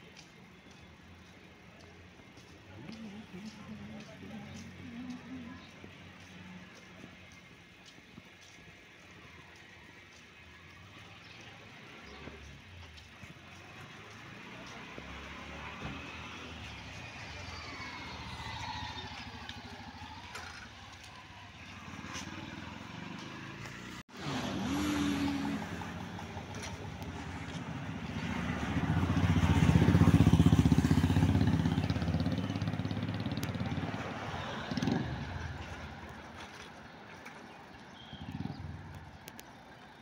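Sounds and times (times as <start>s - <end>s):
auto-rickshaw passing: 10.7s - 40.0s
car passing: 13.4s - 40.0s.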